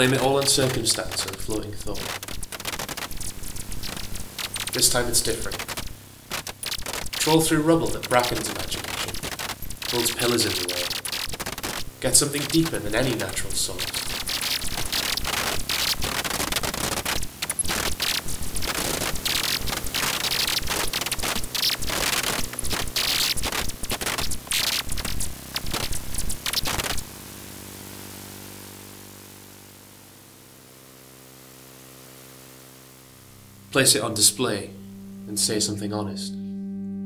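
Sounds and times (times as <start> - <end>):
harsh static crackling and scraping: 0.0 - 36.2
soft low drone: 32.0 - 37.0.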